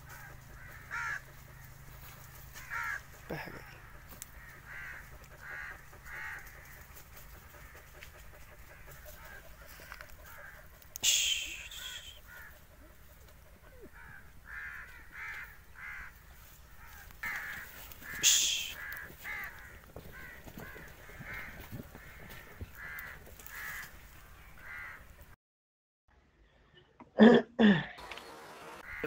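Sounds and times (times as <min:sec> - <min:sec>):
animal calling: 0:00.0 - 0:16.2, 0:16.8 - 0:23.9.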